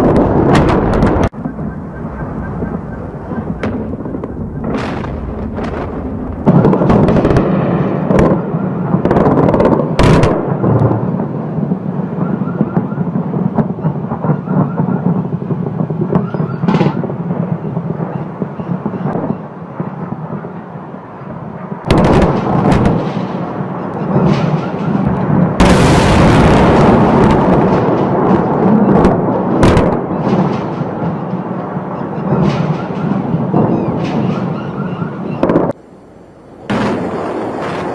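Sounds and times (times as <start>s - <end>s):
explosion blasts: 0.0s - 35.8s, 36.5s - 37.9s
rolling rumble: 0.0s - 37.9s
hissing blast: 0.3s - 9.0s, 21.9s - 31.0s.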